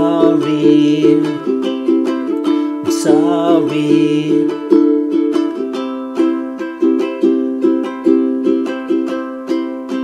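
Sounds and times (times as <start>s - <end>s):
ukulele strumming: 0.0s - 10.0s.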